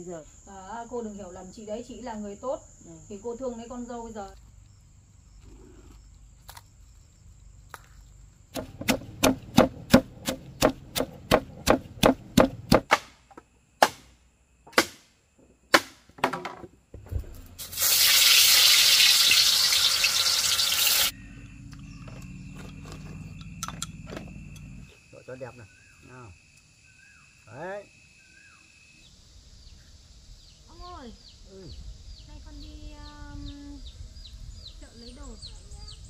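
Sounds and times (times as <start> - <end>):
sharp knocks: 8.5 - 14.1.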